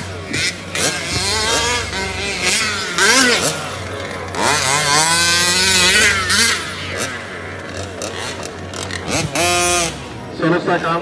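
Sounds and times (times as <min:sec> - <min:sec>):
rc car engines revving: 0:00.0 - 0:11.0.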